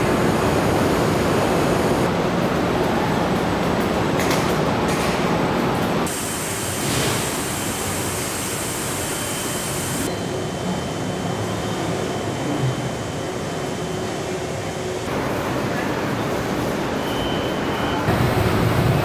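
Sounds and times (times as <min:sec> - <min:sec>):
hiss of air and machinery: 0:06.0 - 0:19.0.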